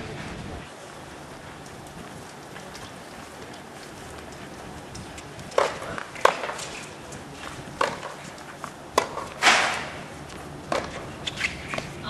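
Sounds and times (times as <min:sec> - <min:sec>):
racket hitting tennis ball: 0:05.4 - 0:12.0
ball bouncing on hard court: 0:07.8 - 0:08.2, 0:09.0 - 0:09.9, 0:10.7 - 0:11.9.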